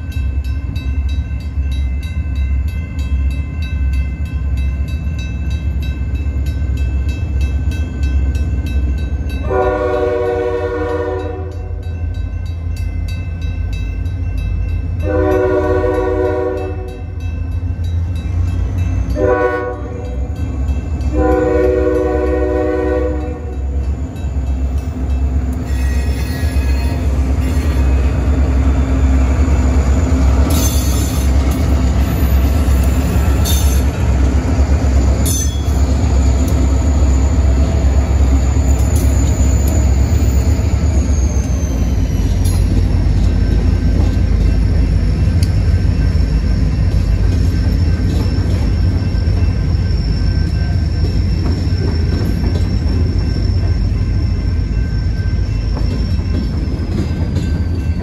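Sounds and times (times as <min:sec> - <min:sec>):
crossing bells ringing: 0:00.0 - 0:58.0
train wheels on rails: 0:00.0 - 0:58.0
locomotive horn blasts: 0:09.4 - 0:11.8, 0:15.0 - 0:17.1, 0:19.1 - 0:20.3, 0:21.1 - 0:23.6.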